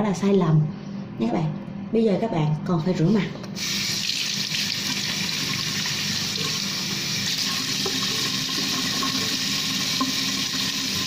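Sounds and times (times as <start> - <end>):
tap running into a sink: 4.1 - 11.0.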